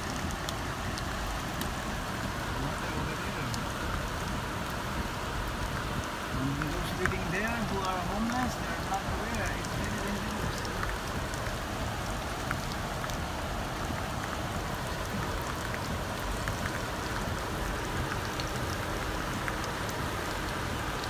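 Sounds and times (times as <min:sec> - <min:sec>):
raindrops ticking on car: 0:00.0 - 0:21.0
steady rain falling: 0:00.0 - 0:21.0.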